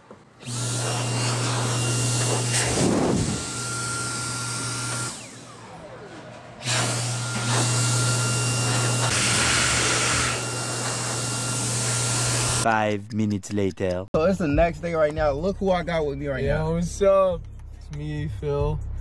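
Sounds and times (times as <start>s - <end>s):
hand dryer blowing: 0.4s - 5.8s, 6.6s - 12.6s.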